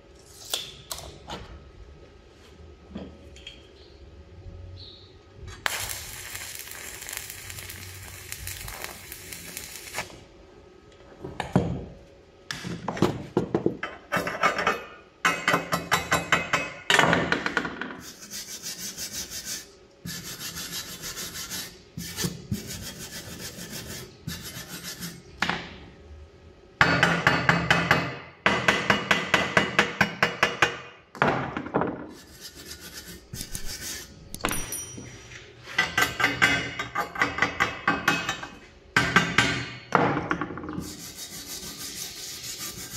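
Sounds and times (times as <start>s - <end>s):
welding arc crackling: 5.5s - 10.3s
wire brush scrubbing metal: 40.8s - 42.9s.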